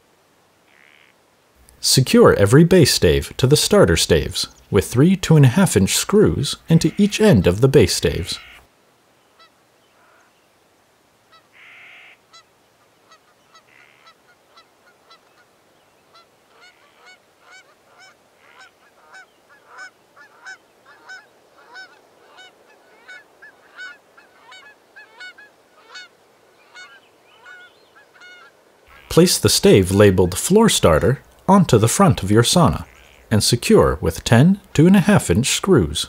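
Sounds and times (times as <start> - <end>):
geese honking: 2.8 - 8.6, 11.3 - 15.5, 16.1 - 34.0.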